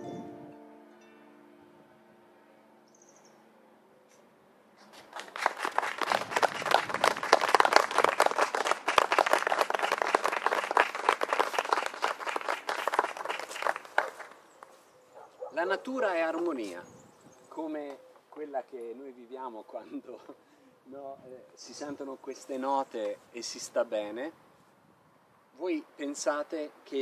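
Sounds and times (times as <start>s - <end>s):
audience applauding: 4.9s - 14.4s.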